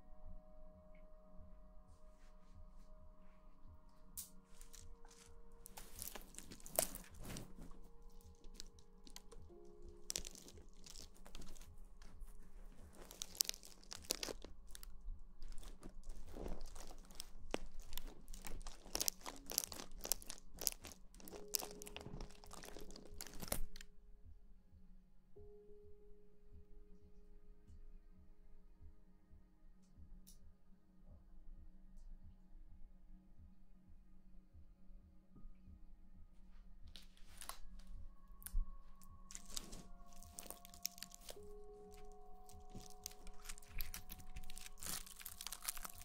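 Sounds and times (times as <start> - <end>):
soft background music: 0.0 - 46.0
rustling and crunching against microphone: 4.5 - 23.8, 36.9 - 46.0.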